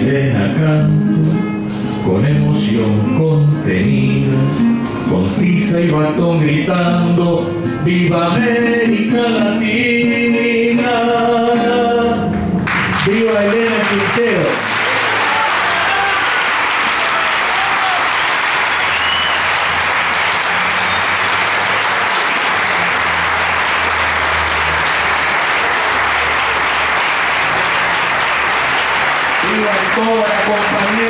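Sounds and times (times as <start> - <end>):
audience applauding: 12.6 - 31.0.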